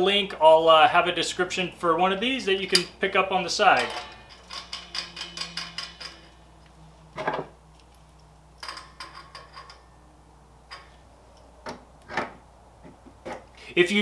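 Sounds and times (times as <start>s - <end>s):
small metallic clicks and clinks: 3.8s - 6.4s, 7.8s - 9.9s.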